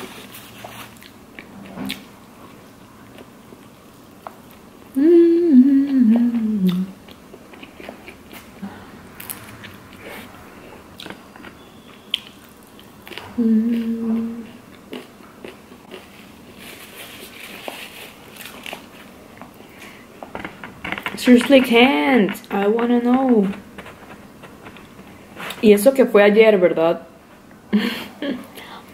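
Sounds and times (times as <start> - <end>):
woman humming: 4.9 - 7.0, 13.3 - 14.6
chewing and crunching food: 6.7 - 10.3, 11.0 - 25.6
paper napkin rustling: 16.5 - 19.0.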